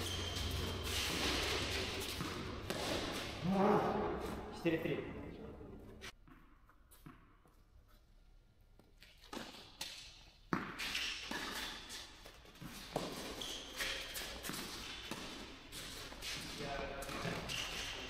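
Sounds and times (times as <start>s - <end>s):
ball bouncing: 0.0s - 3.5s, 6.2s - 7.4s, 9.2s - 18.0s
racquets striking ball: 0.0s - 3.5s, 10.5s - 11.6s.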